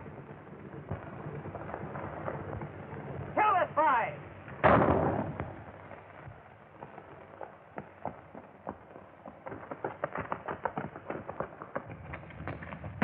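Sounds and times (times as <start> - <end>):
film soundtrack hiss: 0.0 - 13.0.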